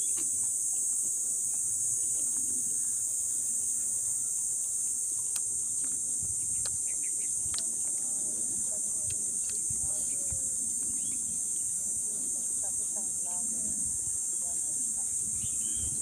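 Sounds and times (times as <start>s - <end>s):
insect chorus droning: 0.0s - 16.0s
crunchy eating clicks: 5.2s - 8.2s, 8.8s - 11.0s.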